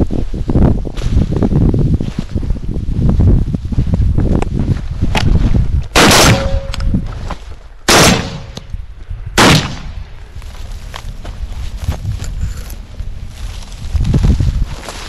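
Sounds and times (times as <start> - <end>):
wind rumbling on microphone: 0.0 - 15.0
loud gunshots: 6.0 - 6.8, 7.9 - 8.6, 9.4 - 10.0.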